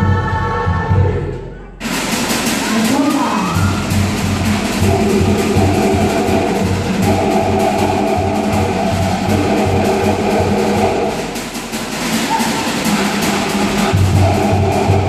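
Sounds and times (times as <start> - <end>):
deep drum beat: 1.8 - 15.0
wooden log drum strokes: 4.0 - 15.0.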